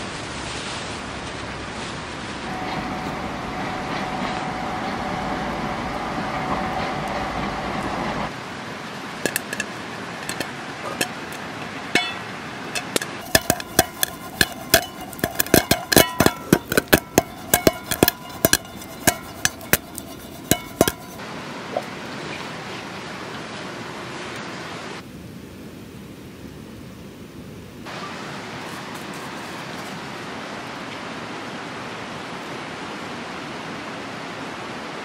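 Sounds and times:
steady hiss: 0.0s - 33.8s
popcorn popping in a pan: 12.8s - 21.2s.

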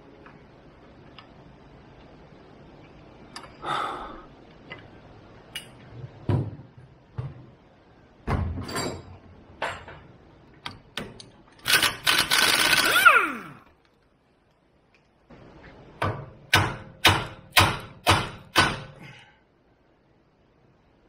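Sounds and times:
impact wrench hammering: 16.0s - 19.0s.

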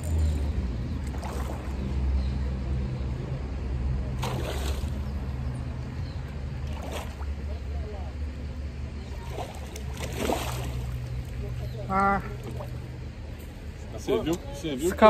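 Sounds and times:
fish splashing at water surface: 1.0s - 1.9s, 4.1s - 5.1s, 6.6s - 7.4s, 9.2s - 11.2s.

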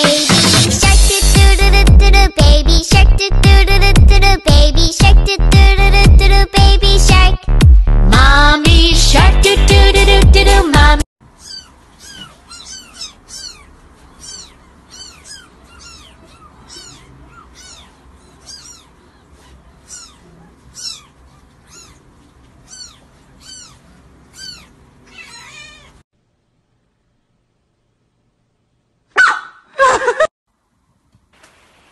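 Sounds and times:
kitten mewing: 11.4s - 26.0s.

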